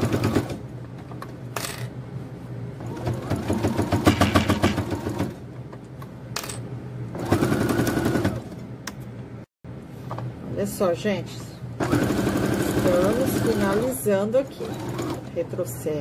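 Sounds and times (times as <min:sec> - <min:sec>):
sewing machine stitching: 0:11.8 - 0:15.3.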